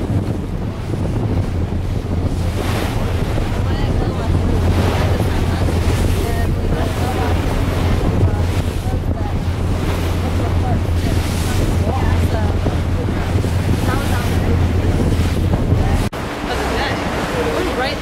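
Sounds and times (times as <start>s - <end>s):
choppy water washing: 0.0s - 18.0s
wind buffeting microphone: 0.0s - 18.0s.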